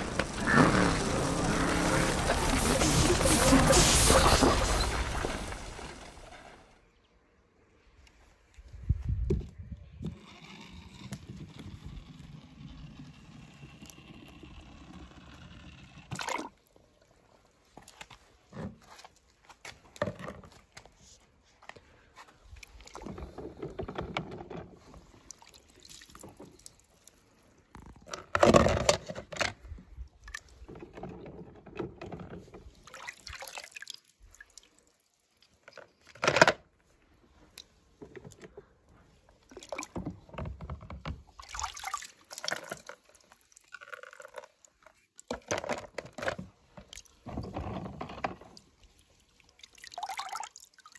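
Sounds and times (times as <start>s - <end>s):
water sloshing in plastic tub: 22.6s - 34.8s, 37.3s - 50.9s.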